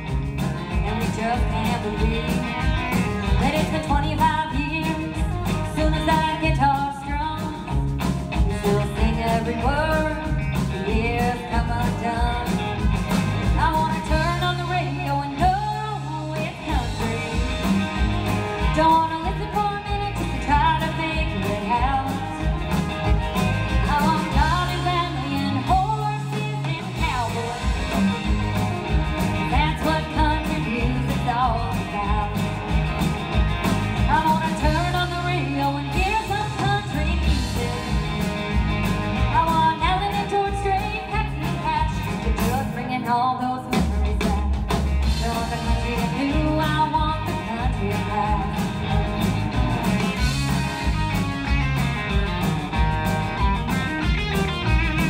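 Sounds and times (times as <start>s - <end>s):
woman singing: 0.0s - 33.0s, 33.6s - 50.9s
strummed acoustic guitar: 0.0s - 42.8s
drums: 0.0s - 55.0s
fiddle: 0.0s - 55.0s.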